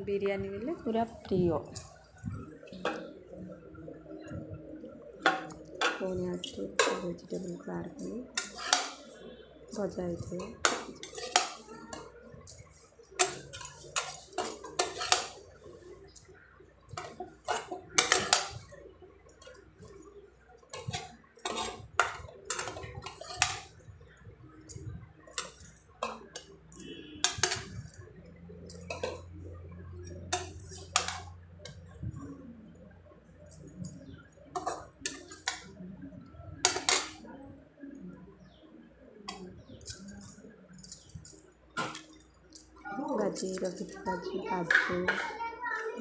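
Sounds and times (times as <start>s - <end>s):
metal spoon scraping metal pot: 5.2s - 16.2s, 16.9s - 18.6s, 20.7s - 23.7s, 25.3s - 27.9s, 30.3s - 31.4s.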